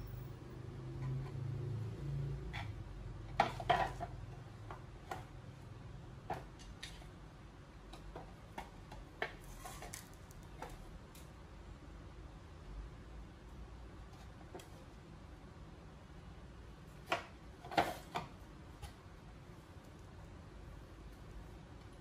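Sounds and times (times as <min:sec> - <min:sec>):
cabinet parts clicking and knocking: 0:02.4 - 0:05.6, 0:06.2 - 0:07.2, 0:07.8 - 0:10.8.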